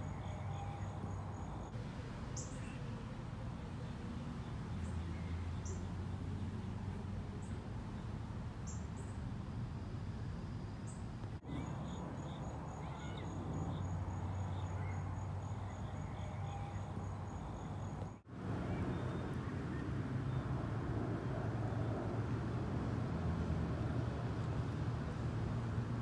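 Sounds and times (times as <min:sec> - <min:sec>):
insect pulsed call: 0:00.0 - 0:01.7, 0:08.6 - 0:18.2.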